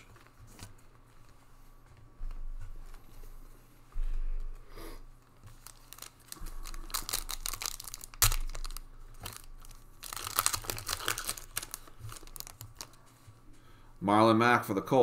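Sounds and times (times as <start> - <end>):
foil wrapper tearing and crinkling: 5.5 - 13.0
sharp foil crackle: 5.5 - 13.0.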